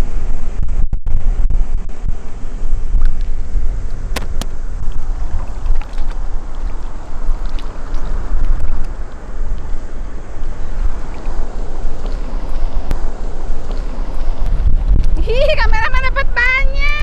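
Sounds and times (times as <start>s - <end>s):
wind buffeting microphone: 0.0s - 17.0s
water moving in rock pool: 2.6s - 15.6s.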